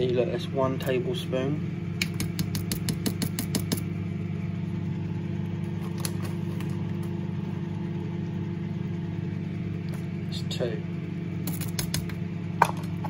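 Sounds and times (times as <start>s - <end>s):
low mechanical hum: 0.0s - 13.0s
spoon tapping on liner: 2.0s - 3.8s.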